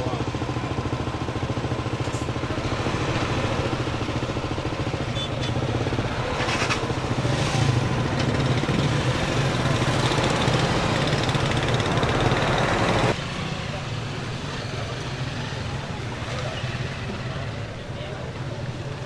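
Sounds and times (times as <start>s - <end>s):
engine running: 0.1s - 13.2s.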